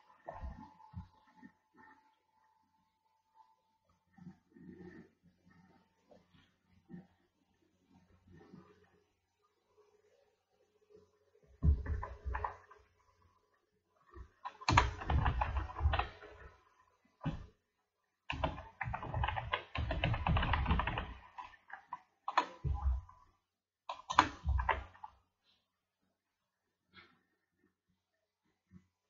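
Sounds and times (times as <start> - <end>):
computer keyboard typing: 14.4 - 16.5, 18.3 - 23.1, 23.9 - 25.1.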